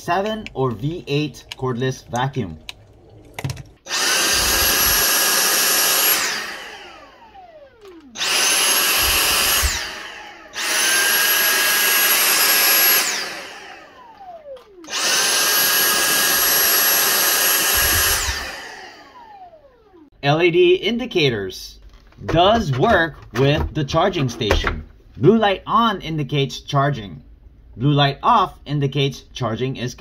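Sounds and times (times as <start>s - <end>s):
handheld vacuum motor whine: 3.4s - 20.1s.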